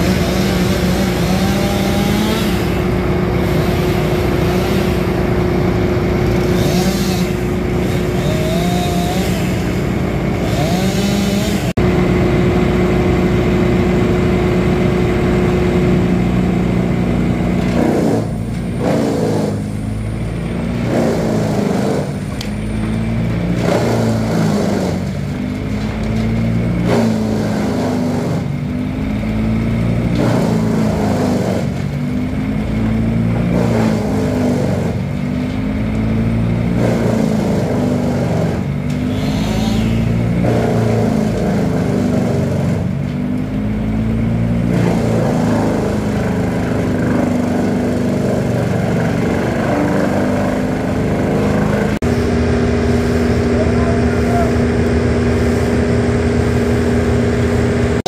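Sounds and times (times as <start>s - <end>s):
chainsaw revving while cutting: 0.0s - 11.8s, 17.6s - 19.7s, 20.8s - 22.3s, 23.5s - 25.1s, 26.6s - 28.6s, 30.0s - 31.8s, 33.0s - 35.1s, 36.3s - 42.9s, 44.2s - 58.0s.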